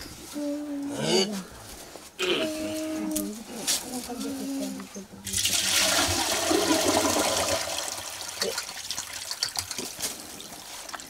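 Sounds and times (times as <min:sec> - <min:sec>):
water pouring into metal basin: 0:05.3 - 0:11.0.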